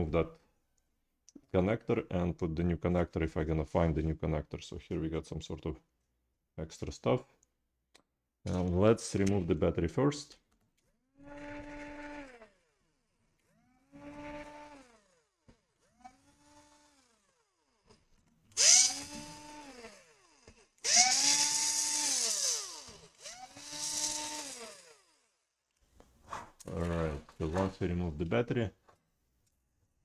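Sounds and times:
electric screwdriver spinning: 11.2 - 25.4.

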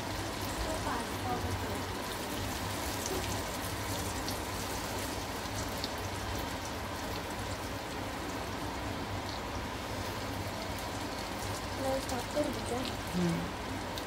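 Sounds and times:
potatoes sizzling in oil: 0.0 - 14.0.

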